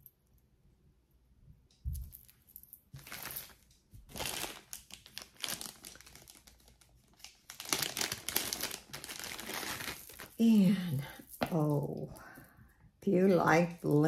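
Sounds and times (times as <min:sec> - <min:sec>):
plastic bag crinkling: 0:01.9 - 0:11.8.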